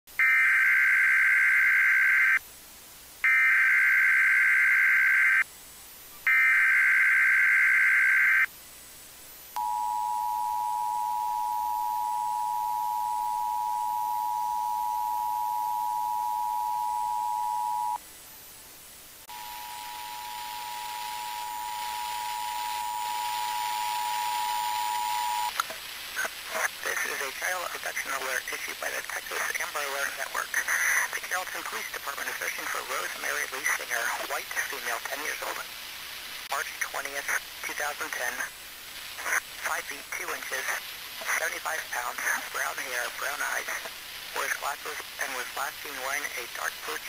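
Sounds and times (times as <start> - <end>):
two-tone attention signal: 9.6 - 18.0, 19.3 - 25.5
harsh data bursts: 19.3 - 25.6
hiss: 38.3 - 45.6.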